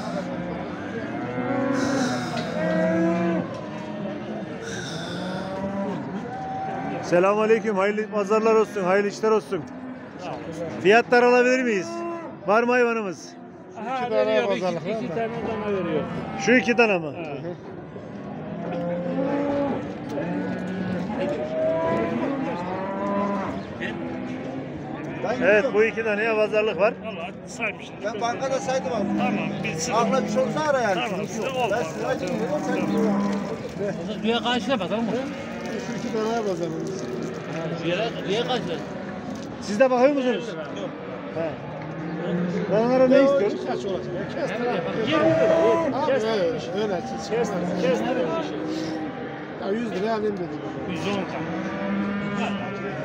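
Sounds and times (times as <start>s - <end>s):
cattle mooing: 0.0s - 6.2s, 18.3s - 24.4s, 28.5s - 33.7s, 51.0s - 53.0s.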